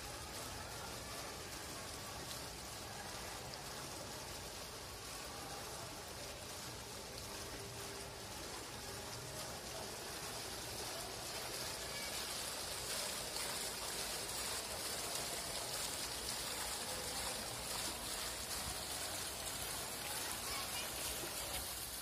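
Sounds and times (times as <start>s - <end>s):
fountain water splashing: 0.0s - 22.0s.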